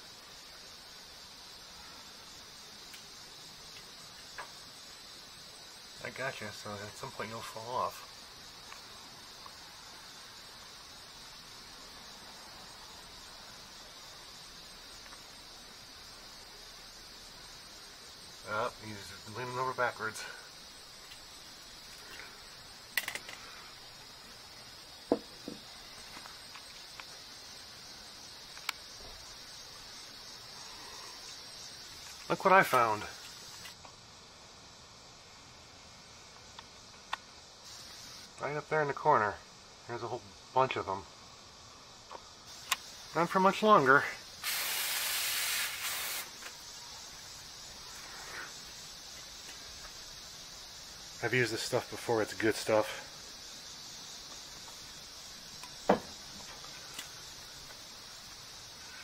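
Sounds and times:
high-pitched insect chorus: 0.0 - 59.0
aerosol can spraying: 44.4 - 46.6.

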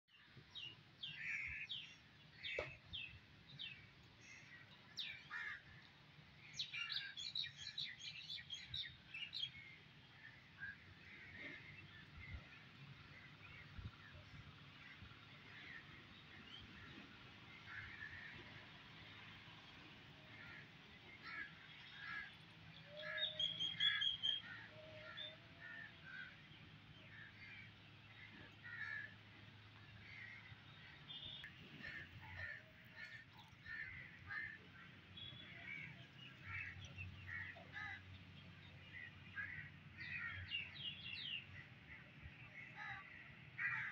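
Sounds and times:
birds chirping and calling: 0.2 - 18.6, 20.3 - 43.9
birds making harsh calls: 22.9 - 26.4.

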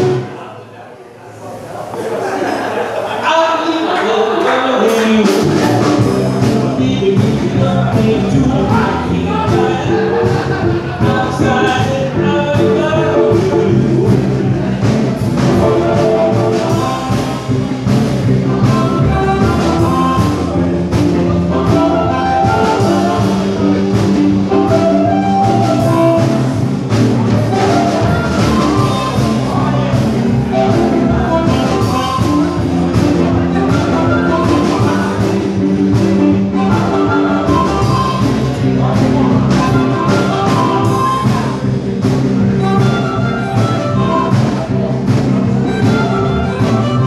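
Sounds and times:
blues band playing: 0.0 - 0.5, 3.6 - 47.0
amplified harmonica melody: 18.4 - 47.0.

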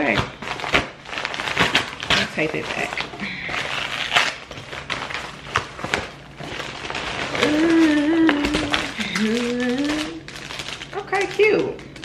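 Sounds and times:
plastic bag rustling and crackling: 0.0 - 12.0
person humming: 7.3 - 10.3.

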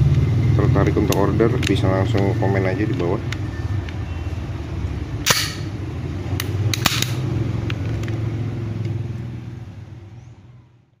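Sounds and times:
loud metallic snap: 5.2 - 5.8, 6.4 - 7.2.

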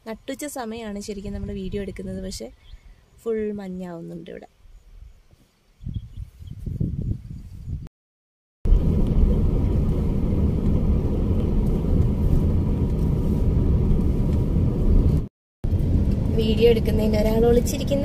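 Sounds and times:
car engine and tyre rumble: 8.7 - 18.0.

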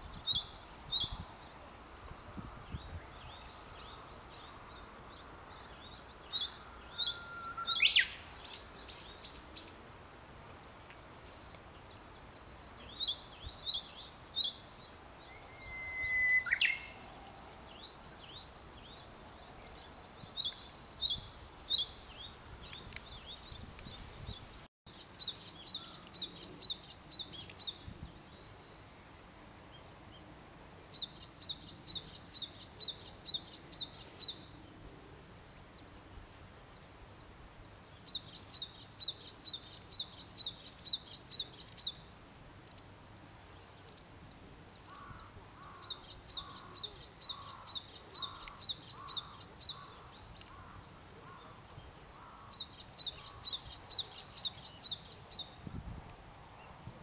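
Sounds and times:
songbirds chirping: 0.0 - 57.0
bird whistled notes: 15.4 - 16.9.

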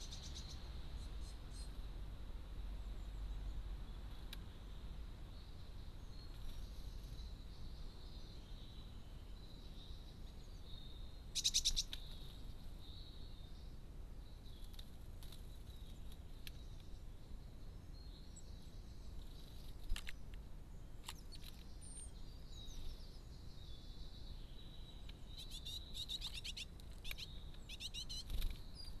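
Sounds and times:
songbirds chirping: 0.0 - 29.0.

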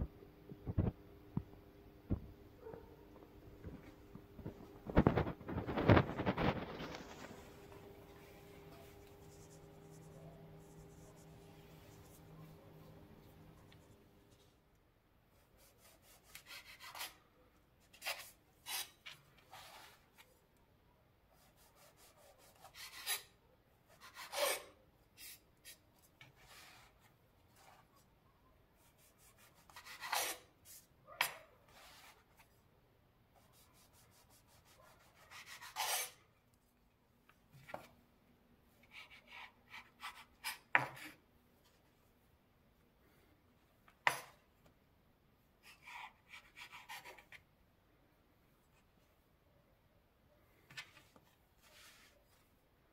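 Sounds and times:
knife sawing through bread: 15.6 - 17.2, 23.9 - 24.8, 34.4 - 36.2
knife scraping wooden board: 17.9 - 20.0, 21.5 - 23.3, 23.9 - 25.8, 29.3 - 30.5, 34.2 - 36.2.

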